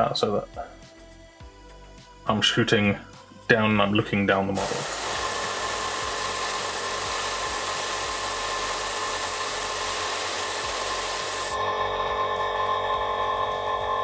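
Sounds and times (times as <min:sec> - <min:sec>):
airbrush spraying hiss: 0:04.6 - 0:11.6.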